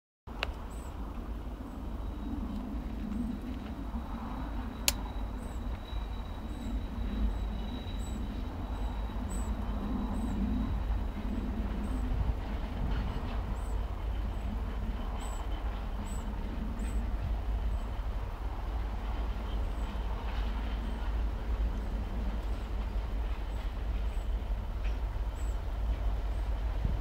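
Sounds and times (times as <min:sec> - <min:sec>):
diesel locomotive engine drone: 0:00.3 - 0:27.0
wind rumbling on microphone: 0:00.3 - 0:27.0.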